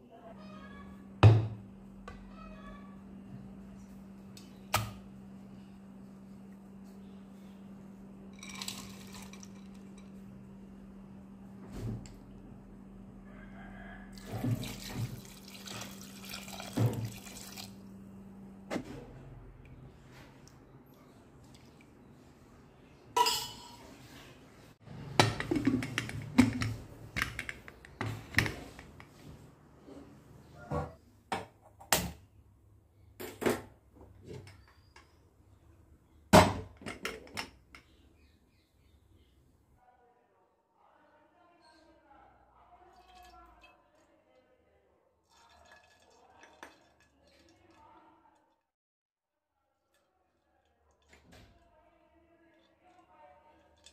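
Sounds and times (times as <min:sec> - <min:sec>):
water pouring and splashing: 0:14.2 - 0:17.8.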